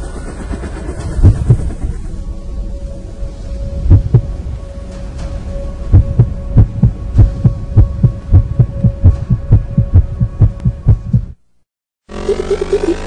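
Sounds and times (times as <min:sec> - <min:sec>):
deep bass thumps: 0:03.9 - 0:04.3, 0:05.9 - 0:11.4.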